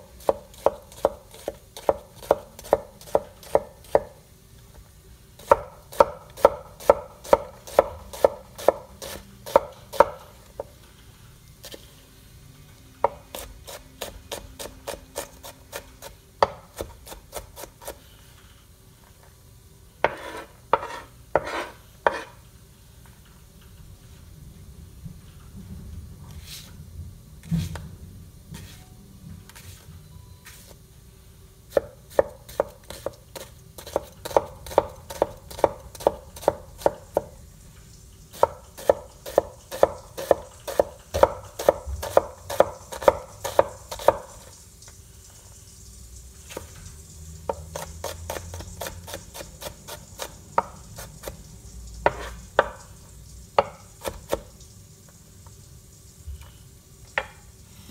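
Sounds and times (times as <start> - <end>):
knife chopping onion on wooden board: 0.0 - 4.2, 5.4 - 10.8, 13.0 - 18.0, 20.0 - 22.4, 31.7 - 37.3, 38.3 - 44.5, 47.5 - 51.4, 52.0 - 52.9, 53.6 - 54.6.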